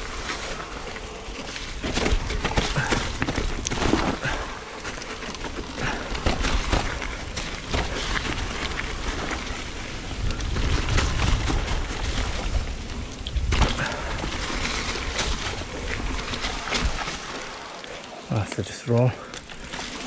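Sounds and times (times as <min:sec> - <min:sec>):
bike rattling over bumps: 0:00.0 - 0:18.3, 0:19.4 - 0:20.0
bike tyres crunching over dirt: 0:00.0 - 0:20.0
wind rumble on microphone: 0:06.1 - 0:17.1.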